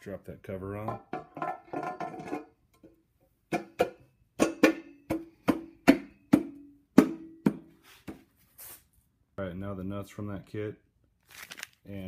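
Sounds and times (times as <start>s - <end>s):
metal cover knocking with ring: 0.8s - 7.6s.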